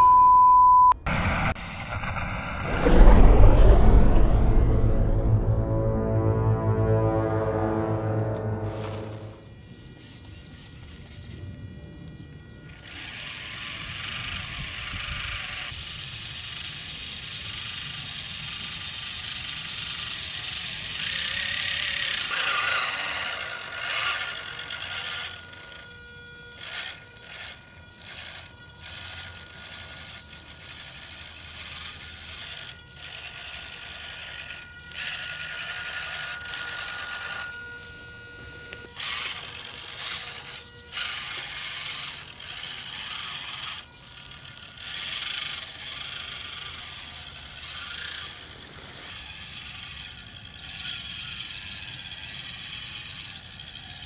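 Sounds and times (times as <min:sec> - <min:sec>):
small electric motor whining: 0:08.2 - 0:54.0.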